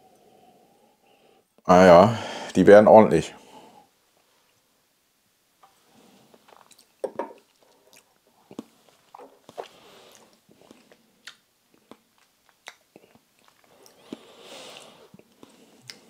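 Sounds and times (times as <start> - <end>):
soft breaths: 0.0 - 2.6, 3.4 - 4.6, 7.6 - 12.0, 12.9 - 16.0
mouth clicks and lip smacks: 6.3 - 16.0.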